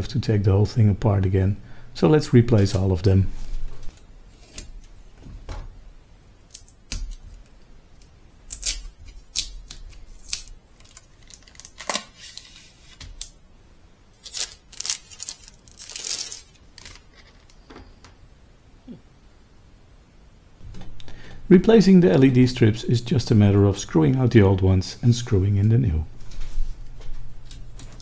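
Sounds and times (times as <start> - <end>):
plastic bag rustling: 14.2 - 17.6.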